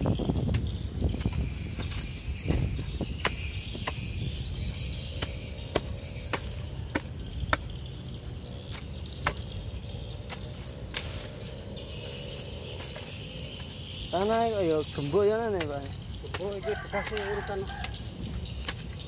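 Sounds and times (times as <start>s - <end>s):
insects chirring: 0.0s - 19.0s
hoe chopping into dry soil: 0.1s - 4.2s, 5.0s - 7.7s, 8.7s - 9.5s, 10.3s - 11.5s, 15.6s - 19.0s.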